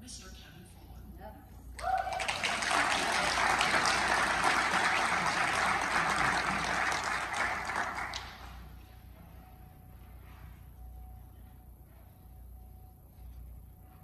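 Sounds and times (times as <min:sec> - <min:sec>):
audience applauding: 0:01.8 - 0:08.8.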